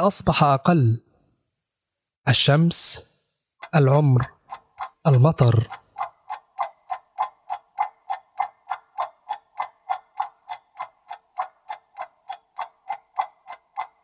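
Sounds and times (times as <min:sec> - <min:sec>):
clock ticking: 0:02.4 - 0:14.0.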